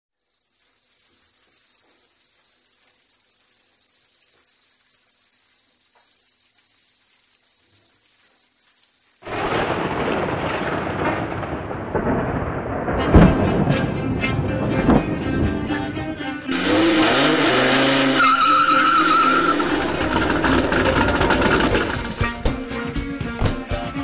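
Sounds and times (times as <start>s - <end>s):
crickets chirping: 0.1s - 13.4s, 16.5s - 22.4s
loud rushing noise: 13.0s - 18.4s, 19.0s - 22.2s.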